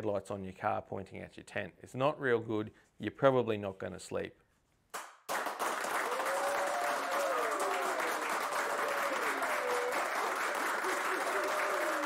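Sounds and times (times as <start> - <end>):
crowd applauding: 5.3 - 12.0.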